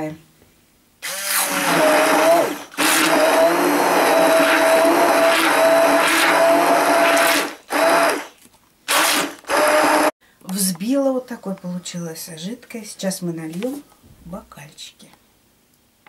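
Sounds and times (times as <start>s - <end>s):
immersion blender motor whine: 1.0s - 8.3s, 8.9s - 10.2s.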